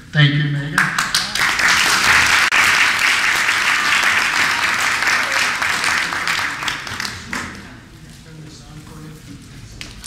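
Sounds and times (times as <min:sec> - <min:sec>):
crowd applauding: 0:00.8 - 0:07.8.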